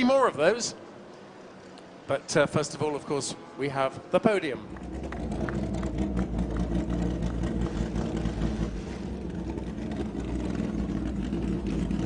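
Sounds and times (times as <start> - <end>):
racing car engines at low revs: 2.7 - 12.0.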